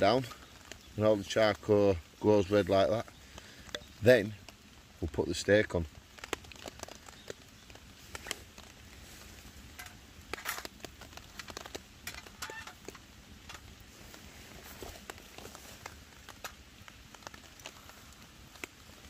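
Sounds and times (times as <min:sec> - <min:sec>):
charcoal fire crackling and popping: 0:00.0 - 0:19.0.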